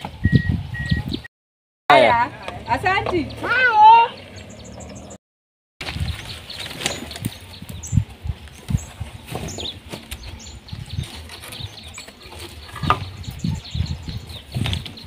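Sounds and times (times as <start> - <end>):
bird chirps: 0.0 - 1.3, 2.4 - 5.2, 5.9 - 15.0
wind buffeting microphone: 0.0 - 1.3, 5.8 - 15.0.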